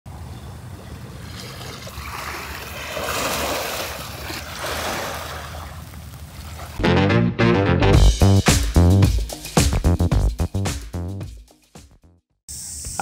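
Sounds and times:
sea waves washing onto shore: 1.6s - 6.8s.

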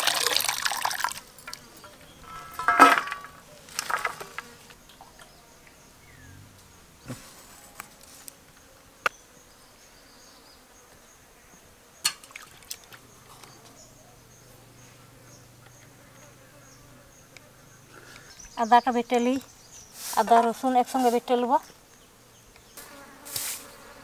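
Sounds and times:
high insect chirping: 11.9s - 24.0s
flying insect buzzing: 13.0s - 24.0s.

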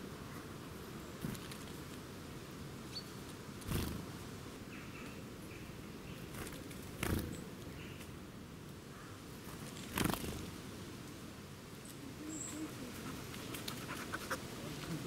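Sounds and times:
bird wing flutter: 3.6s - 4.1s, 6.3s - 7.4s, 9.5s - 10.6s
dog panting: 13.0s - 14.5s.

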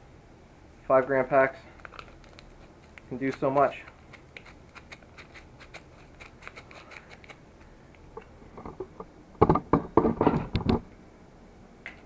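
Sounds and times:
foil packet crinkly ticks: 1.8s - 7.4s
handling knocks and clunks: 8.5s - 10.8s.

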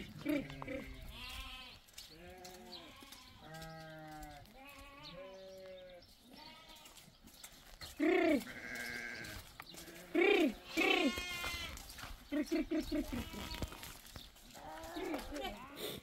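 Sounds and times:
sheep bleating: 0.0s - 7.0s, 8.0s - 16.0s.

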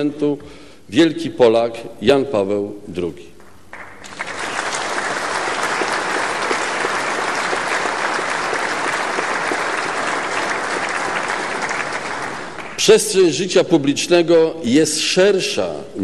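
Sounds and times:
audience applauding: 3.4s - 13.1s.

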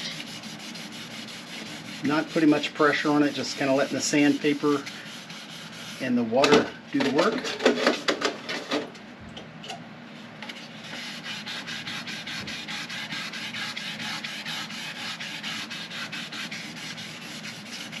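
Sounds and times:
wet sanding scrubbing hiss: 0.0s - 6.2s, 10.8s - 18.0s.

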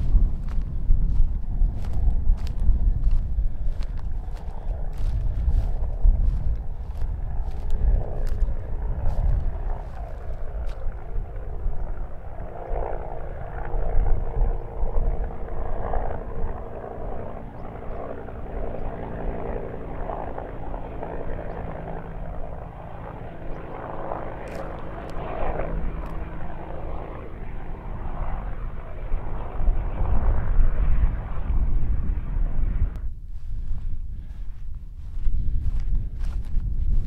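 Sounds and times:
low rumble: 0.0s - 12.4s
distant engine drone: 0.0s - 37.0s.

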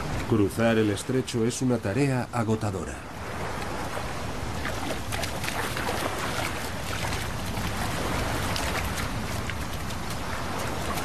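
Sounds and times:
sea waves breaking on beach: 0.0s - 11.0s
water splashing: 3.2s - 11.0s.

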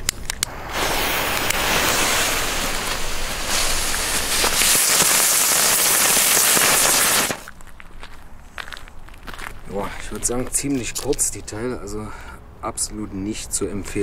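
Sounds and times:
spinning fireworks hissing: 0.4s - 7.5s.

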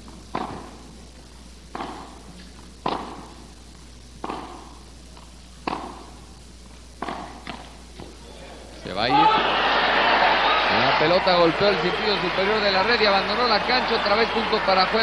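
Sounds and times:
racket hitting tennis ball: 0.3s - 0.8s, 1.7s - 2.2s, 2.8s - 3.3s, 4.2s - 4.7s, 5.6s - 6.1s, 7.0s - 7.7s
echo in indoor hall: 9.0s - 15.0s.

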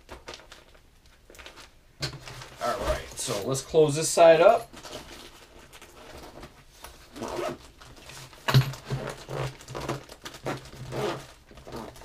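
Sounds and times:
zipper being pulled closed: 7.1s - 7.7s, 8.8s - 12.0s.

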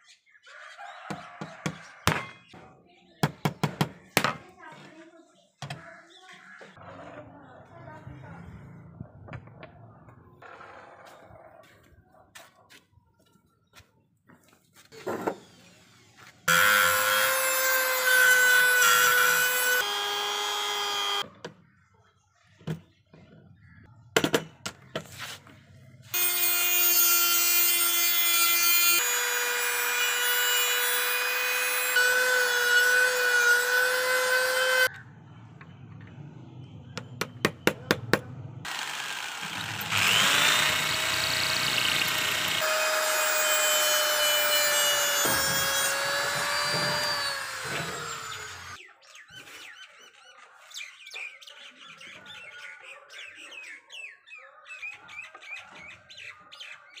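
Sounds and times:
rotary tool grinding steel: 15.1s - 21.3s, 26.1s - 34.9s, 38.7s - 48.8s
electric drill whining: 15.3s - 21.2s, 26.2s - 34.9s, 38.7s - 48.8s.

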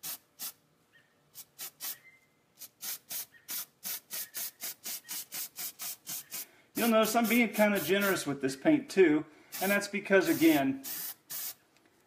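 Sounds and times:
spray paint can hissing: 0.0s - 0.6s, 1.4s - 2.0s, 2.6s - 8.3s, 9.5s - 11.6s.

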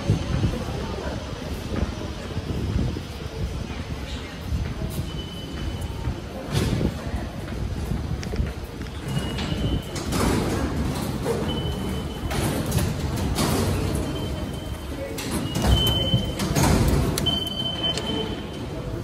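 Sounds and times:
turnstile arms clunking: 5.0s - 19.0s
short high beeps: 14.0s - 16.4s, 17.2s - 18.6s.

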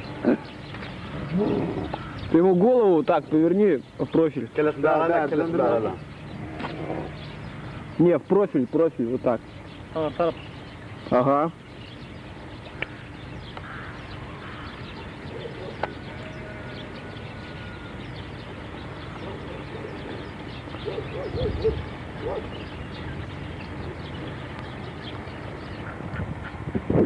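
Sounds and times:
short low animal calls: 1.1s - 2.3s.

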